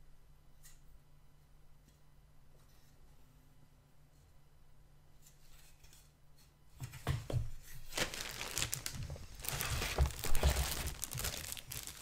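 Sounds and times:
plastic bag crinkling: 0:07.8 - 0:12.0.

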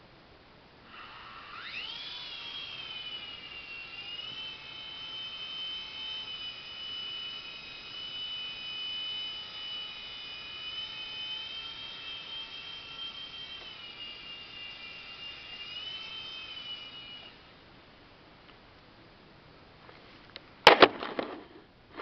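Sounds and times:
toy helicopter motor whine: 0:00.8 - 0:17.6.

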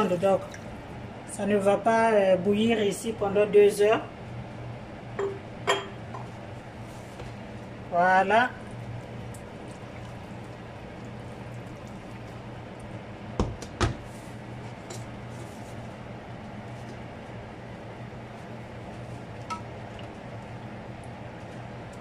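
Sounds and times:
steady low hum: 0:00.0 - 0:22.0
pot knocking on cooktop: 0:05.2 - 0:06.2, 0:13.4 - 0:14.0.

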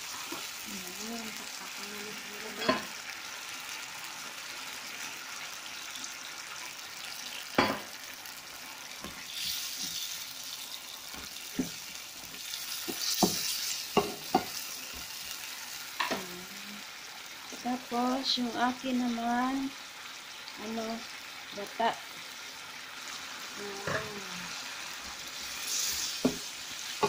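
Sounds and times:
curry sizzling in a pan: 0:00.0 - 0:27.0
wooden spatula knocking on pan: 0:26.2 - 0:26.4.

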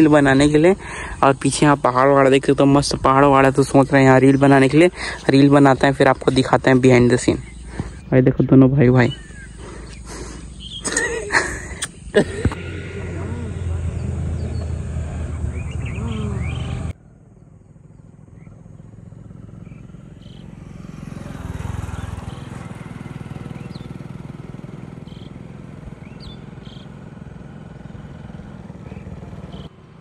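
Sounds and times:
motorcycles riding past: 0:00.0 - 0:08.0, 0:08.9 - 0:30.0
bird chirps: 0:03.9 - 0:08.1, 0:08.9 - 0:24.2, 0:24.9 - 0:27.0, 0:28.7 - 0:29.8.

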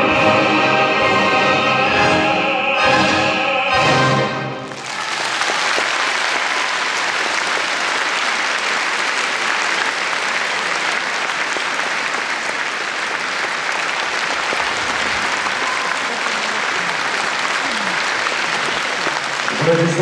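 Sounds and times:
choir and orchestra chord: 0:00.0 - 0:04.6
audience applauding: 0:04.6 - 0:20.0.

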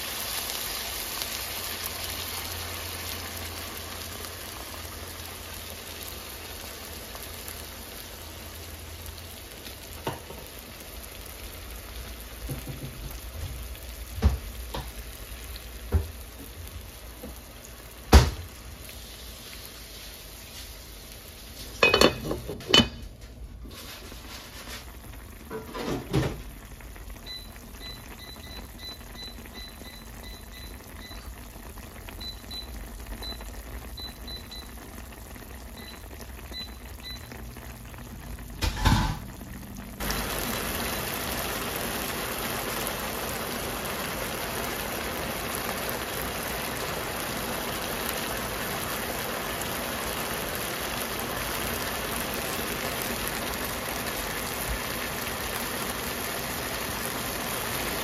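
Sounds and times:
sauce bubbling in a pan: 0:00.0 - 0:58.0
knock on pan: 0:10.0 - 0:10.5, 0:12.4 - 0:13.6, 0:14.2 - 0:15.0, 0:15.9 - 0:16.2, 0:18.1 - 0:18.5, 0:21.8 - 0:23.0, 0:25.5 - 0:26.4, 0:38.6 - 0:39.3.

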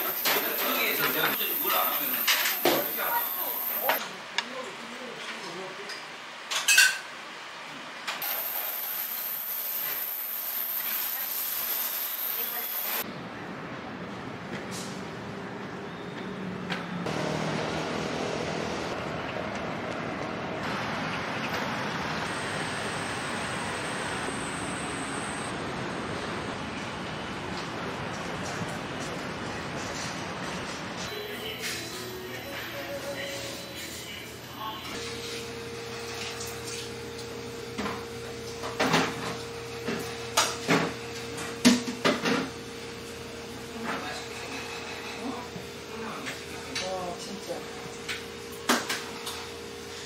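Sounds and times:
passing vehicles: 0:13.2 - 0:26.5.

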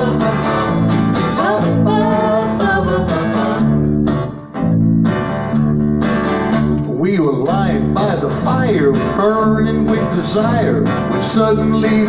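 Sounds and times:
voices singing wordless line: 0:00.0 - 0:04.4
acoustic guitar strumming: 0:00.0 - 0:12.0
electric bass: 0:00.0 - 0:12.0.

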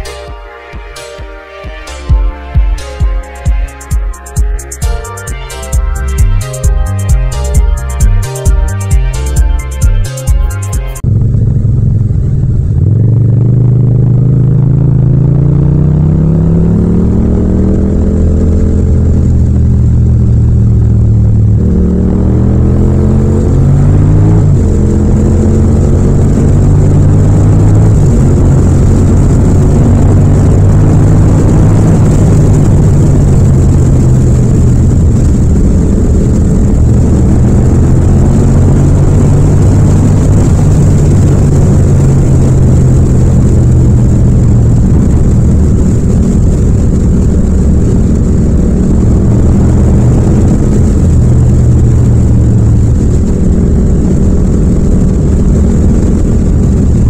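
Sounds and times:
motorcycle engine cruising: 0:00.0 - 0:57.0
light wind noise: 0:22.6 - 0:57.0.

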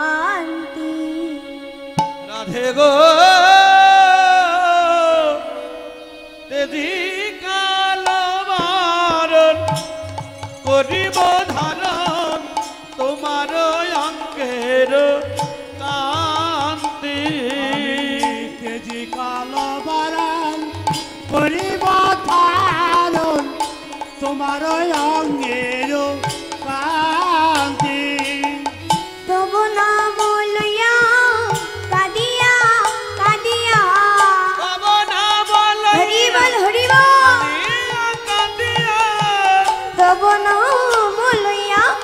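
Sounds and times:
hand drum rhythm: 0:08.6 - 0:29.6, 0:30.3 - 0:34.5.

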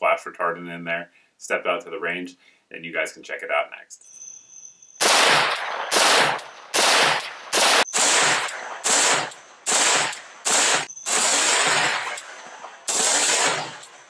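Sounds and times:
rifle shots echoing: 0:05.0 - 0:14.0.

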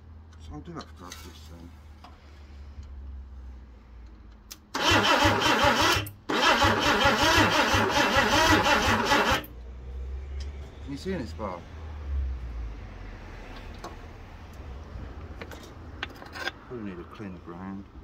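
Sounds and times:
car engine cranking by starter motor: 0:04.6 - 0:09.5.

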